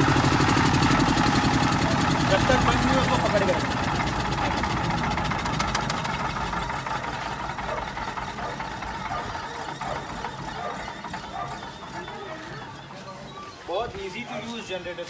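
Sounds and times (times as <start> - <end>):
diesel generator engine running down: 0.0 - 14.3.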